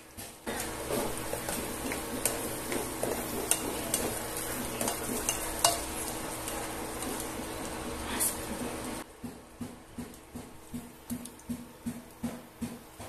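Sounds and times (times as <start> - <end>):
vegetables sizzling in oil: 0.0 - 9.1
spatula scraping and tapping pan: 0.2 - 8.8.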